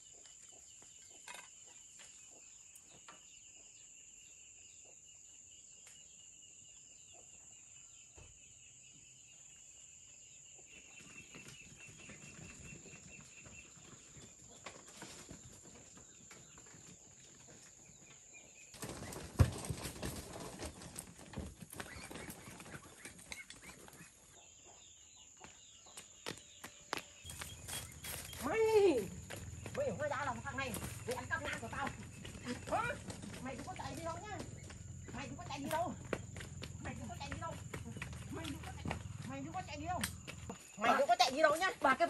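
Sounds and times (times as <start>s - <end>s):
footsteps scuffing on dirt: 25.4s - 42.0s
insects buzzing: 26.2s - 42.0s.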